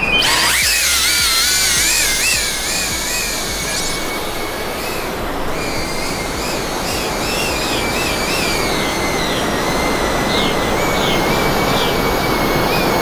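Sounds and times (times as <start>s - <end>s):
drone motors whining: 0.0s - 13.0s
steady rushing noise: 0.0s - 13.0s.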